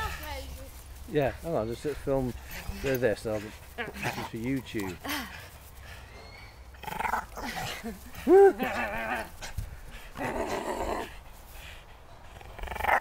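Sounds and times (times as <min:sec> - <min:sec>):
dog growling: 0:06.8 - 0:09.5, 0:10.2 - 0:11.2, 0:12.3 - 0:13.0.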